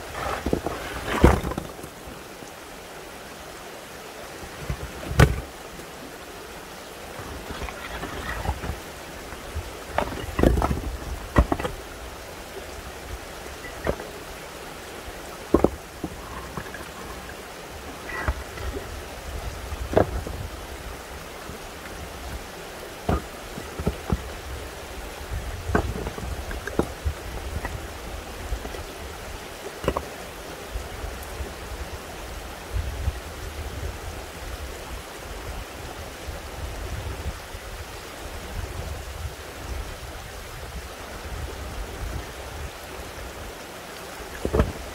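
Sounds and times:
stones knocking and clattering: 0.2 - 1.9, 4.6 - 5.5, 9.9 - 11.8, 13.6 - 14.2, 15.5 - 17.3, 23.1 - 24.3, 25.7 - 27.8, 29.8 - 30.1, 44.4 - 44.8.

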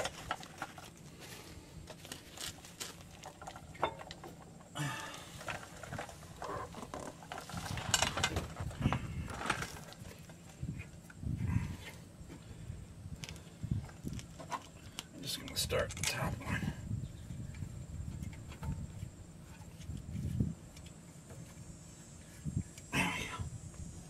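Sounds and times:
small metallic clicks and rattles: 14.1 - 16.3.

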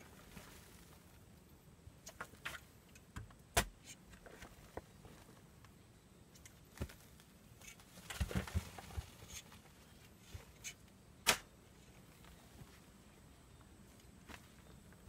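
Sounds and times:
shovel digging stony soil: 10.6 - 11.5.

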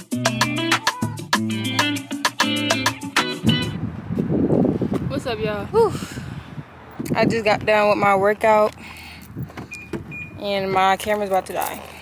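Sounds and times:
background music with percussion and bass: 0.0 - 3.8.

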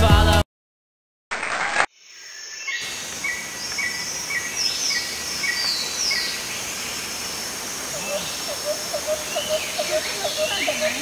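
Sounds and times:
higher falling calls: 7.5 - 11.0.

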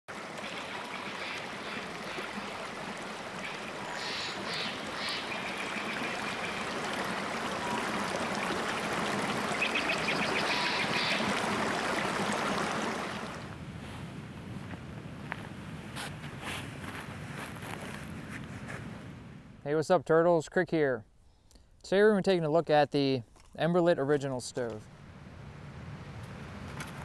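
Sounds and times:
stream running over rocks: 0.1 - 13.6.

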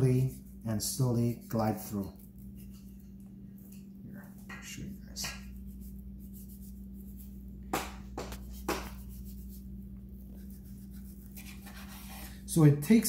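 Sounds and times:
steady low hum: 0.0 - 13.0
knife strokes on bone: 8.2 - 12.5
knife scraping through meat: 10.4 - 12.5.

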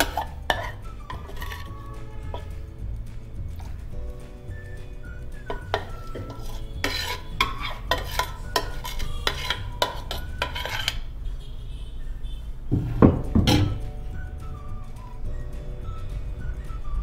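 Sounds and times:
ladle scraping and clinking on bowl: 0.0 - 2.6, 5.4 - 11.1, 13.4 - 13.8
metallic clatter: 12.9 - 13.9.

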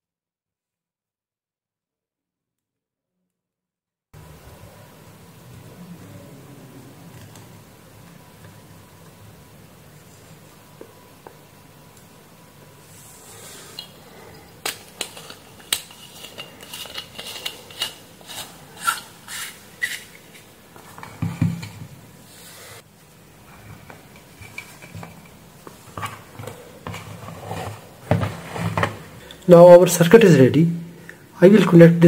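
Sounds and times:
wires and parts clicking and rustling: 13.7 - 21.8, 23.8 - 29.5.

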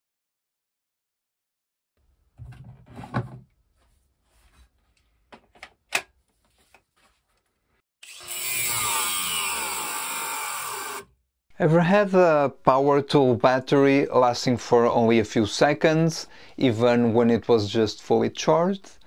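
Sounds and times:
angle grinder cutting metal: 8.0 - 11.1.

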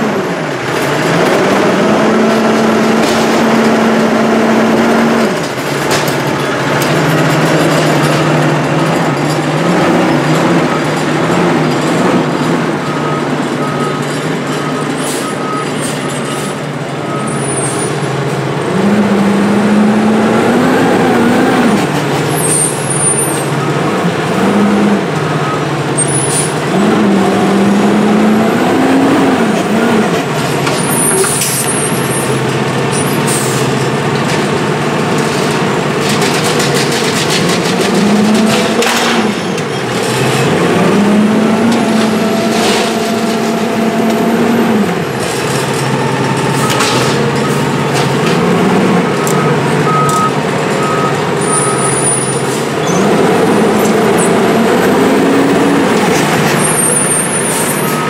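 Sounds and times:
diesel truck engine: 0.0 - 58.0
repeated beep: 12.8 - 17.8, 49.2 - 53.0, 57.7 - 58.0.

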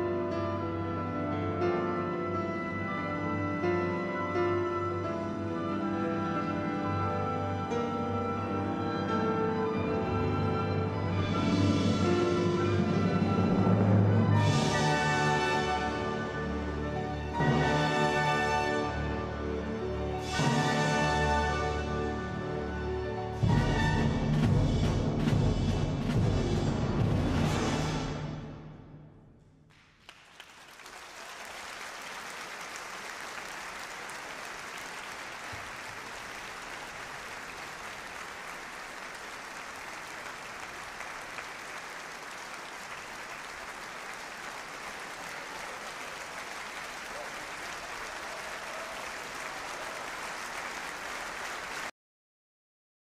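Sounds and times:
orchestral chord: 0.2 - 28.7
audience applause: 29.7 - 51.9.

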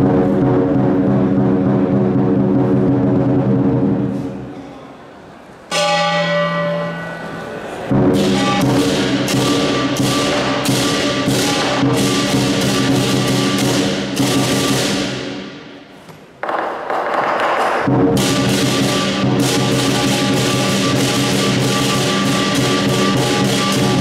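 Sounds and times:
gong ringing: 5.7 - 15.0, 18.2 - 24.0
cymbal crashes: 5.7 - 15.8, 17.9 - 24.0
lion drum: 7.9 - 15.5, 16.4 - 24.0.

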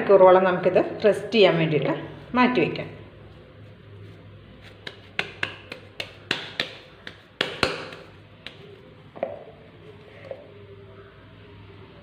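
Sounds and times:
hands slapping bread dough: 4.1 - 8.9.

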